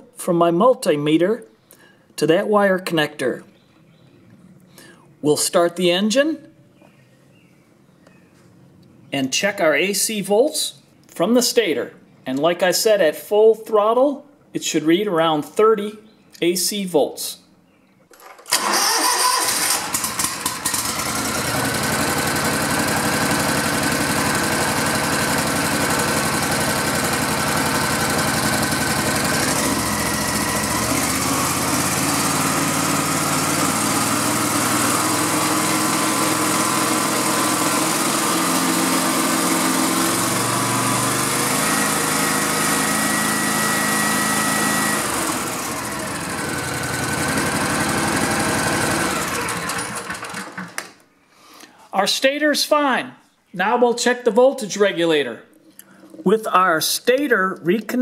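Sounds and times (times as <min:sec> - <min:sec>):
riding lawn mower engine running: 0:18.1 - 0:51.0.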